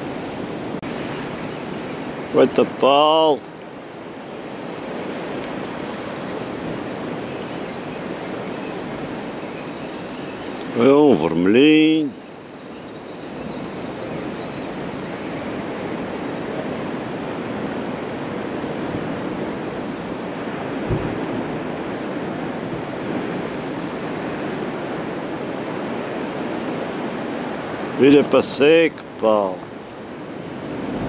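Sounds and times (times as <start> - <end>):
surf washing on rocky shore: 0.0 - 31.0
wind on microphone: 3.5 - 28.0, 29.6 - 31.0
low thump: 20.8 - 21.2.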